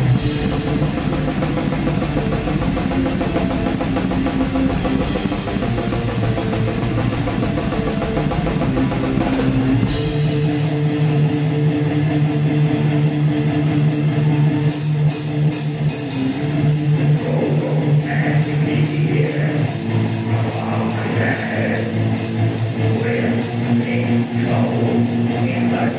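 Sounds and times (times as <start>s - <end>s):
fast drumming: 0.0s - 11.4s, 14.7s - 25.9s
distorted electric guitar: 0.0s - 25.9s.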